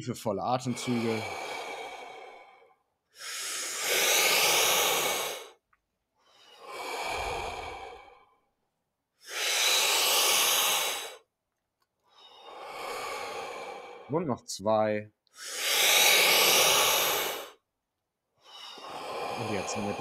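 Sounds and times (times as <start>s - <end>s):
deep breaths through the mouth: 0.6s - 5.6s, 6.2s - 8.6s, 9.2s - 11.3s, 12.0s - 14.2s, 15.3s - 17.6s, 18.4s - 20.0s.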